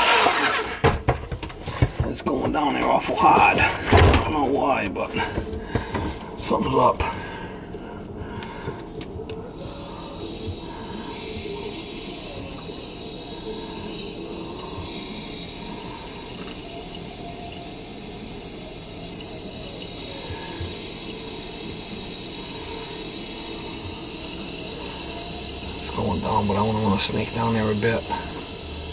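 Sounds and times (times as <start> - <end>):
tap water running: 0.0 - 7.4, 8.1 - 28.9.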